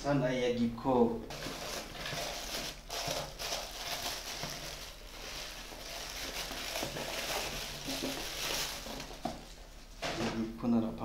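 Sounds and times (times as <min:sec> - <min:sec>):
plastic wrapping crinkling: 0:01.3 - 0:09.7.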